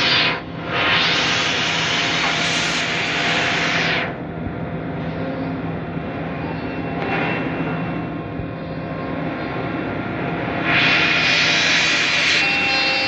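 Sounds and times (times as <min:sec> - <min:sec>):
loud hiss: 0:00.0 - 0:04.2, 0:10.6 - 0:13.0
machine hum: 0:00.0 - 0:13.0.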